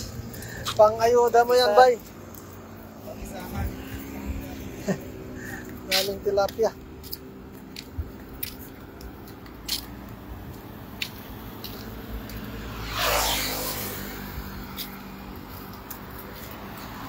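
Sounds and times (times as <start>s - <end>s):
vehicle rushing past with rumble: 11.9s - 15.3s.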